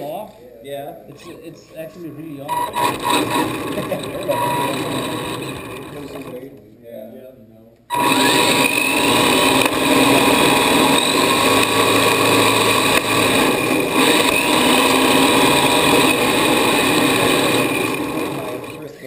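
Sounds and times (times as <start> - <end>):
motor whine rising: 2.5 - 6.4, 7.9 - 19.0
rc car motor and tyre noise: 2.5 - 6.5, 7.9 - 19.0.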